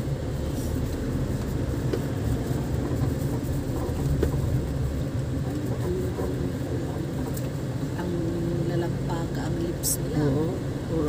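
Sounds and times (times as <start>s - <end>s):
road noise: 0.0s - 11.0s
vehicle engine rumble: 0.0s - 11.0s.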